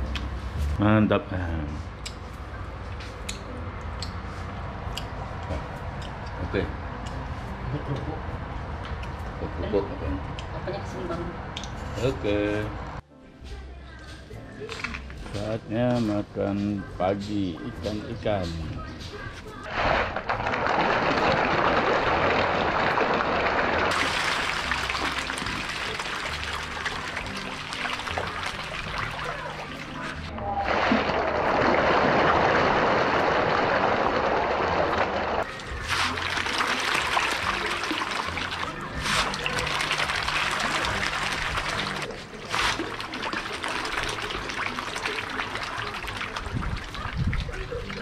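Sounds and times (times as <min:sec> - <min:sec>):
fish splashing at water surface: 0:19.7 - 0:48.0
trickling water: 0:19.7 - 0:48.0.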